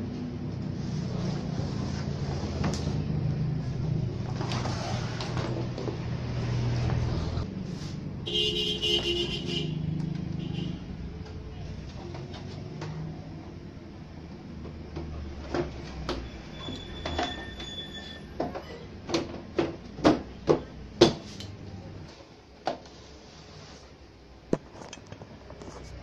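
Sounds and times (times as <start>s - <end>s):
plastic knocks and clatter: 18.4s - 21.2s.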